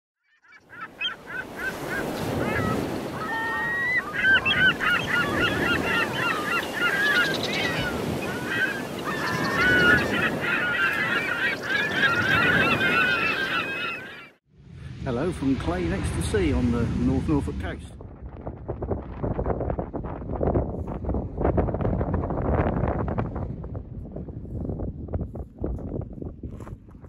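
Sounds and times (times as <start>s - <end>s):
geese calling: 0.4s - 14.4s
steady rushing noise: 14.5s - 21.6s.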